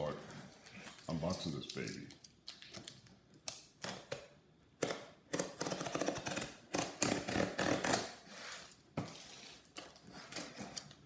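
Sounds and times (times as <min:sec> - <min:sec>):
knife cutting packing tape: 0:03.8 - 0:08.7.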